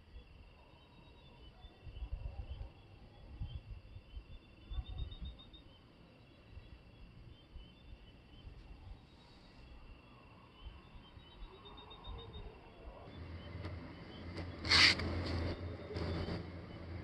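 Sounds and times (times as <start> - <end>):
night insects chirping: 0.0 - 17.0
low steady hum: 1.9 - 17.0
hissing rustling burst: 14.6 - 16.5.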